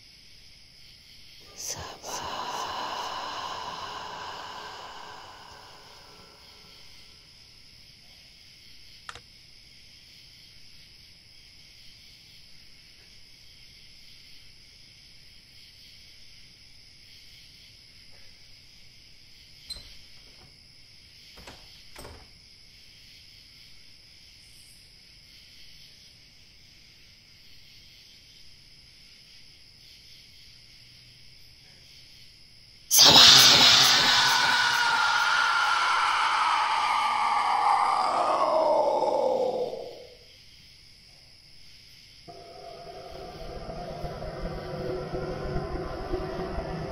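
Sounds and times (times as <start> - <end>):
high-pitched hiss: 1.4 - 7.5, 32.9 - 40.3, 42.1 - 46.9.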